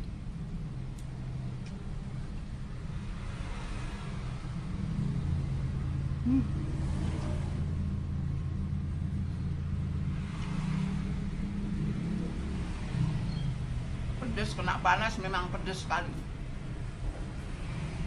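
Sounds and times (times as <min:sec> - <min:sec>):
low humming tones: 0:00.0 - 0:18.0.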